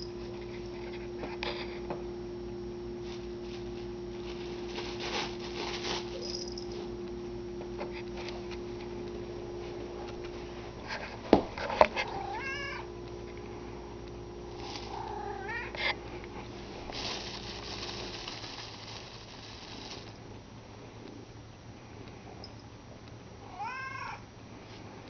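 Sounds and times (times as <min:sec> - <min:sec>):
rustling: 0:03.0 - 0:06.9, 0:14.5 - 0:20.2
cat meowing: 0:12.1 - 0:12.9, 0:14.9 - 0:15.8, 0:23.5 - 0:24.2.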